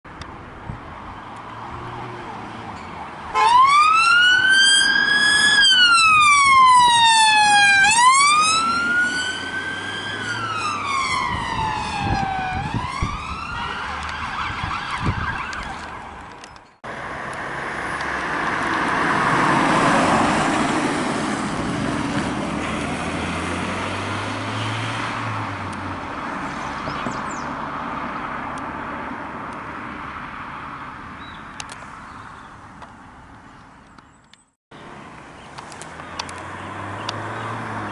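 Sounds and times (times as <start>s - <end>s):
vehicle passing: 0.9s - 33.3s, 34.8s - 37.9s
emergency siren wailing: 3.3s - 16.2s.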